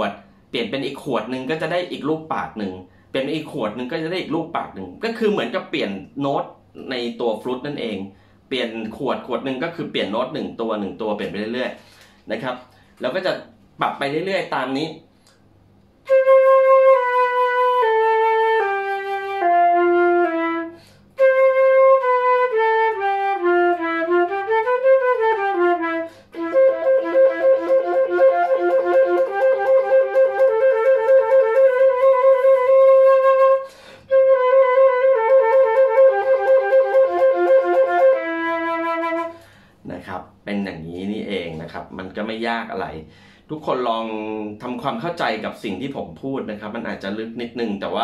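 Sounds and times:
flutist breathing: 0:08.1 - 0:08.5, 0:11.8 - 0:13.0, 0:20.7 - 0:21.2, 0:26.1 - 0:26.4, 0:33.6 - 0:34.1, 0:39.3 - 0:39.8, 0:43.1 - 0:43.5
solo flute playing: 0:16.0 - 0:39.4.

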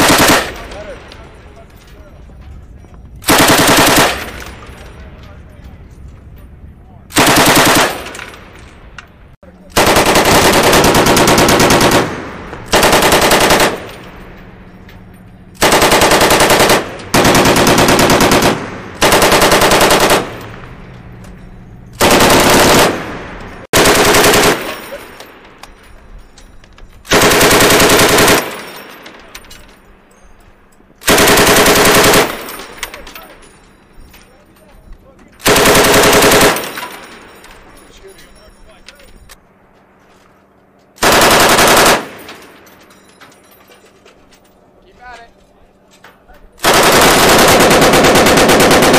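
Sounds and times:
machine gun bursts: 0:00.0 - 0:00.8, 0:03.2 - 0:04.7, 0:07.1 - 0:08.4, 0:09.7 - 0:14.0, 0:15.6 - 0:20.5, 0:22.0 - 0:25.2, 0:27.1 - 0:28.9, 0:31.0 - 0:33.2, 0:35.4 - 0:37.2, 0:41.0 - 0:42.6, 0:46.6 - 0:48.9.

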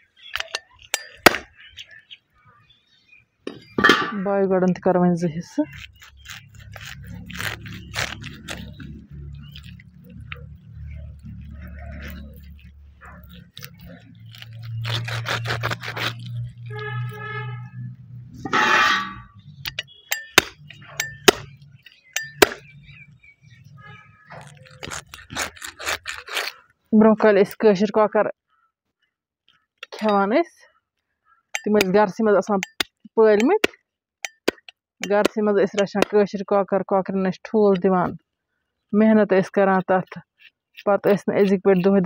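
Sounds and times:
knife chopping through bone on wood: 0:19.7 - 0:22.7, 0:32.6 - 0:36.2.

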